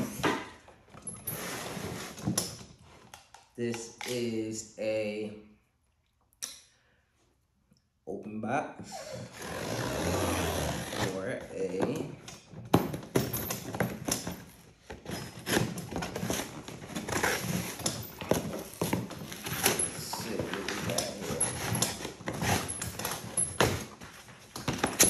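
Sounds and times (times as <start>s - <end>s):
box and packaging handled: 11.5s - 25.0s.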